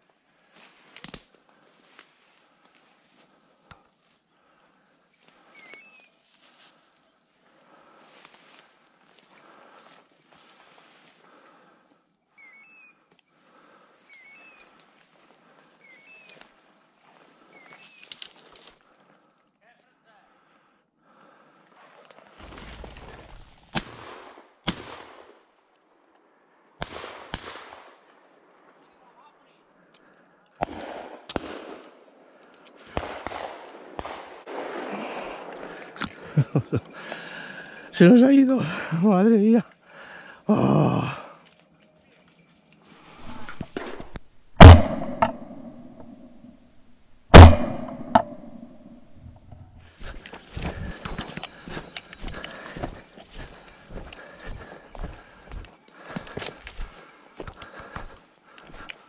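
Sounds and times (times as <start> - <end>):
rustling of brush: 0.0 - 4.3, 5.0 - 11.7, 13.5 - 19.3, 21.7 - 24.0, 49.8 - 59.0
shotgun shots with echo: 30.6 - 31.9, 32.9 - 35.5, 44.6 - 45.6, 47.3 - 48.7.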